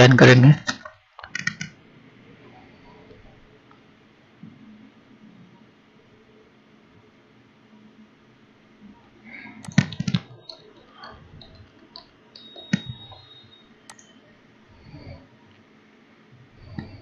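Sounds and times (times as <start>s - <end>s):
computer keyboard key presses: 0.7s - 1.8s, 9.6s - 14.1s.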